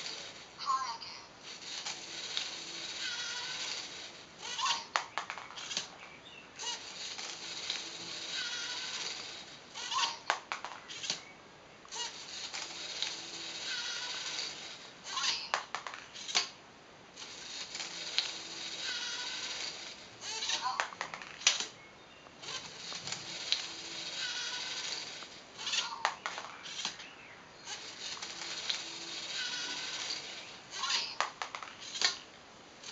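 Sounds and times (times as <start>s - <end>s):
servo motors whirring: 1.4s - 5.0s, 6.6s - 10.3s, 11.9s - 15.5s, 17.2s - 20.8s, 22.4s - 27.0s, 27.6s - 31.2s
plastic clicks and clacks: 10.0s - 11.2s, 20.3s - 21.8s, 25.0s - 27.1s, 30.9s - 32.3s.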